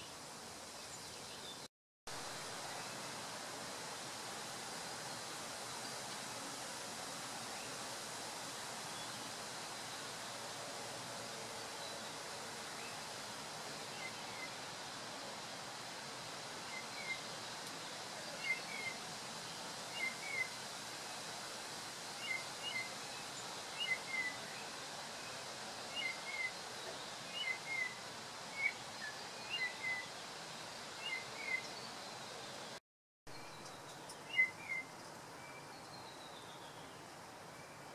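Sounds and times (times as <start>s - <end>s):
steady hiss: 0.0s - 37.9s
bird chirping: 28.6s - 30.1s, 33.3s - 37.1s.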